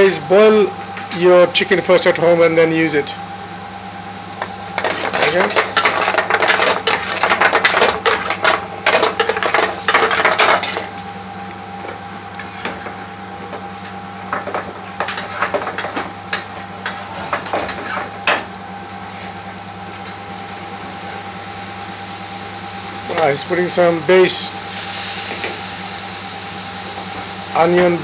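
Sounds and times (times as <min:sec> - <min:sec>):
steady low hum: 0:00.0 - 0:28.0
metal spoon scraping metal pan: 0:04.8 - 0:10.8.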